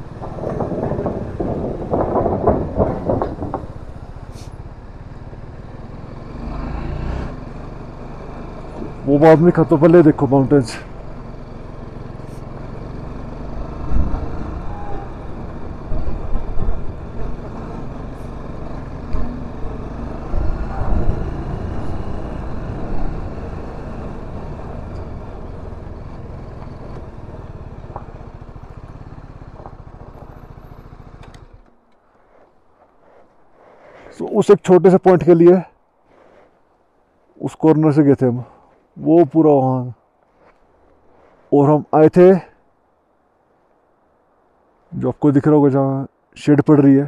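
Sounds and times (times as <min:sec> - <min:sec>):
motorcycle engine running: 0:00.0 - 0:32.4.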